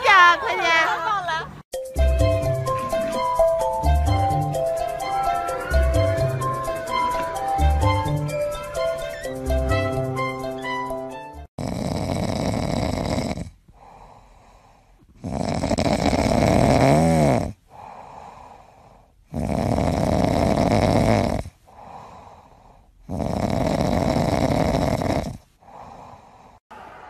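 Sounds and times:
cat snoring: 11.6s - 26.6s
cat breathing quietly: 13.7s - 15.2s, 17.7s - 19.2s.

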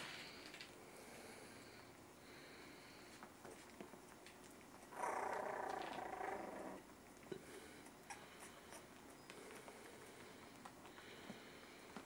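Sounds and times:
puppies scuffling and clicking: 3.0s - 12.0s
puppy growling: 4.4s - 9.3s.

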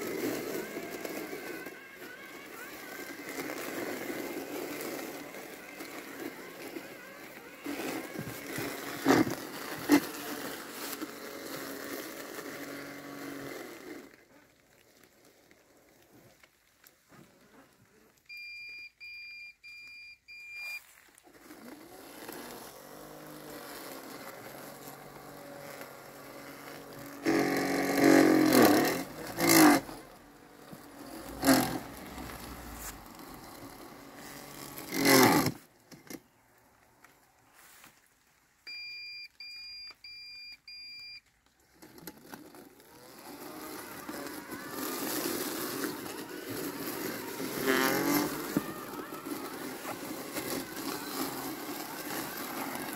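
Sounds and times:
robotic mower motors whining: 0.0s - 18.4s, 20.6s - 37.2s, 41.5s - 52.9s
two-tone beeps: 18.3s - 20.8s, 38.7s - 41.2s.

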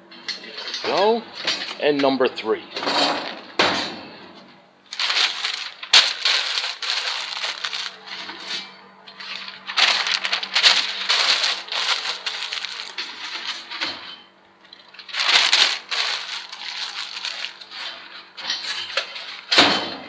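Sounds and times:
newspaper crumpling: 4.9s - 8.6s, 9.2s - 13.8s, 14.9s - 19.5s.

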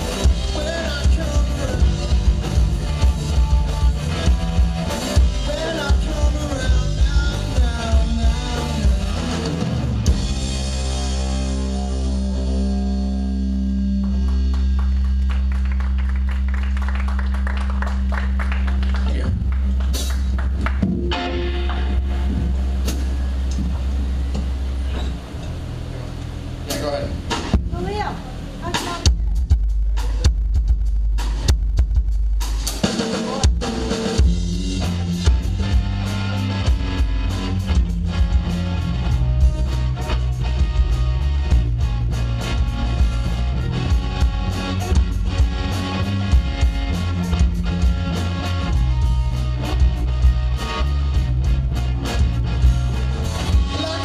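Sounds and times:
live rock band playing: 0.0s - 54.0s
low guitar and bass notes: 0.0s - 54.0s
drum kit hits: 19.3s - 25.7s, 26.7s - 54.0s.

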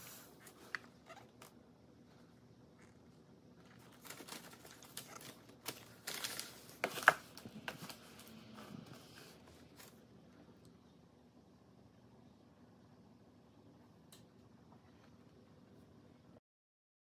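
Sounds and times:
packing paper rustling and crinkling: 3.6s - 10.0s.

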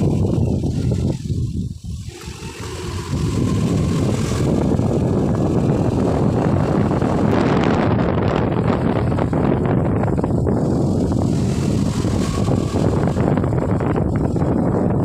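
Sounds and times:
motorcycle running: 0.0s - 15.0s
wind rushing over microphone: 0.0s - 15.0s.

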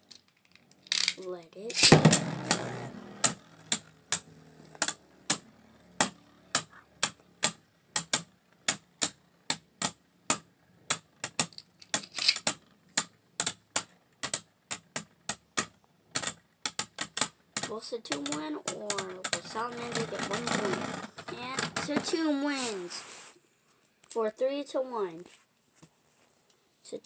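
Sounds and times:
spinning tops clacking: 0.9s - 6.7s, 11.2s - 12.5s.

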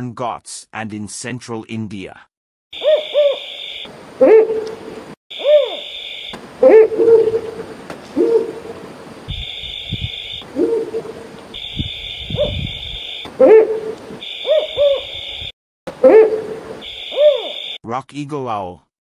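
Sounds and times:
owl hooting: 2.8s - 17.8s.

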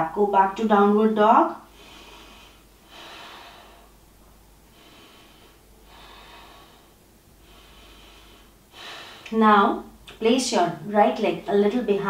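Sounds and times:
person breathing slowly: 1.7s - 9.3s.

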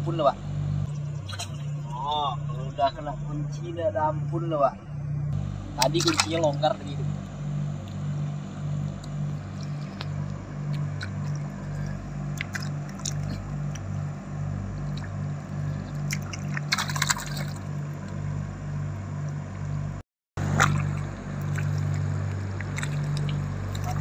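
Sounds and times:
pulsing low hum: 0.0s - 24.0s
muddy water splashing: 5.4s - 24.0s.

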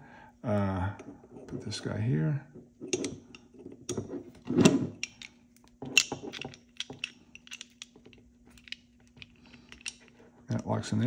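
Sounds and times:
pistol parts clicking: 5.0s - 10.2s.

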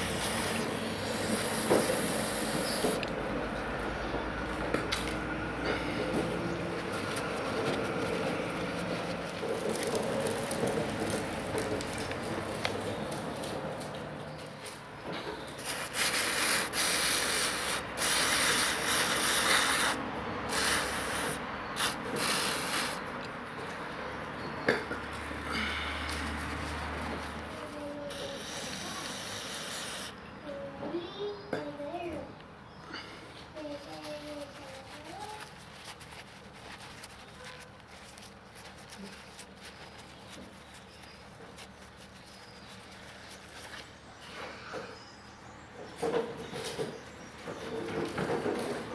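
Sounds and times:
aerosol spray hissing: 0.0s - 3.0s, 15.6s - 23.0s, 28.1s - 30.2s
paper towel crinkling: 6.8s - 12.6s, 33.9s - 44.1s.

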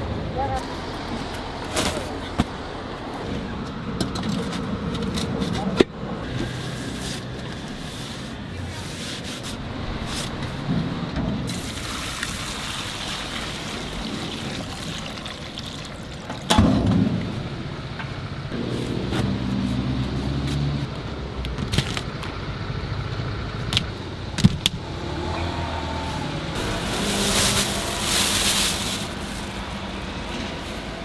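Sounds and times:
city street traffic: 0.0s - 31.0s
vehicle engine humming by: 17.1s - 31.0s.

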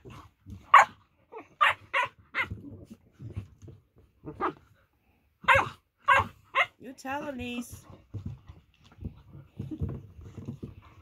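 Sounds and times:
dog barking: 0.7s - 1.0s, 1.6s - 2.5s, 5.4s - 6.8s.

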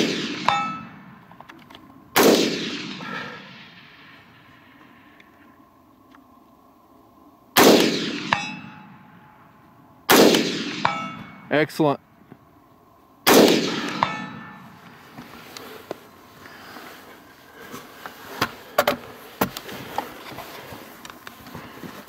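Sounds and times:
rifle shots echoing: 0.0s - 1.3s, 2.1s - 5.1s, 7.5s - 9.2s, 10.1s - 11.5s, 13.2s - 15.0s
distant steel target clang: 0.0s - 1.4s, 2.2s - 4.2s, 7.6s - 12.0s, 13.3s - 15.1s.

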